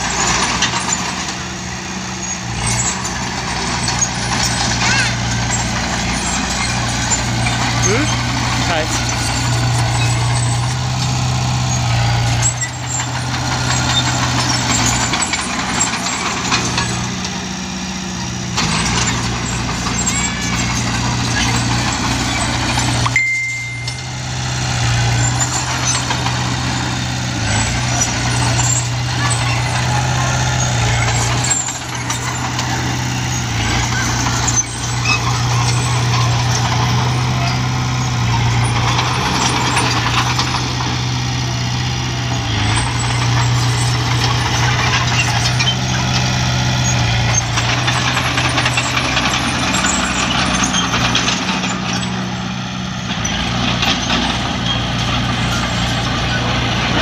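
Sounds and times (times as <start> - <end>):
bulldozer diesel engine running: 0.0 - 57.0
steel tracks clattering: 0.0 - 57.0.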